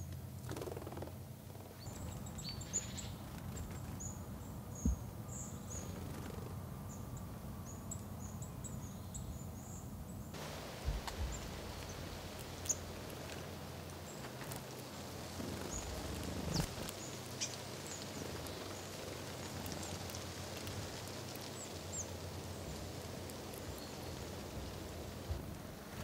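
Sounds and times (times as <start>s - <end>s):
faint high bird calls: 1.6s - 10.3s.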